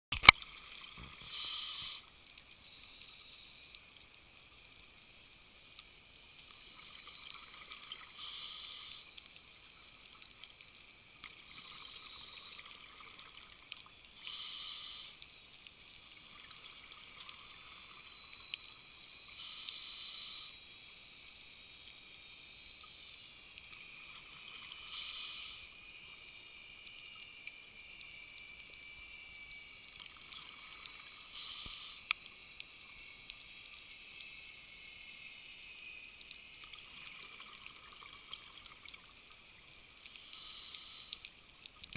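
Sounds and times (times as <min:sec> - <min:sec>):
reef clicks and crackles: 0:00.1 - 0:41.9
faint steady hiss: 0:00.2 - 0:41.9.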